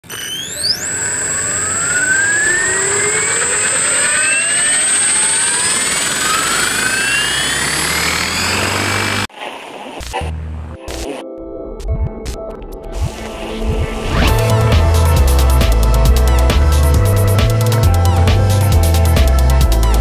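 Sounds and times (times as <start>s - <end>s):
rc helicopter motor whine: 0.0s - 9.3s
steady high whine: 0.0s - 9.3s, 12.8s - 19.9s.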